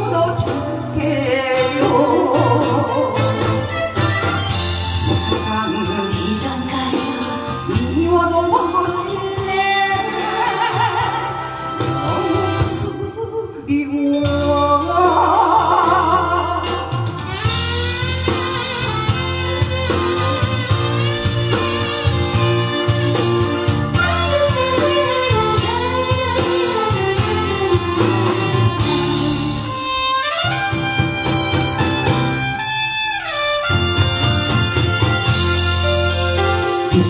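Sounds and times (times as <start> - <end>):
woman singing into microphone: 0.0 - 3.7, 5.1 - 17.4
backing track with bass: 0.0 - 37.0.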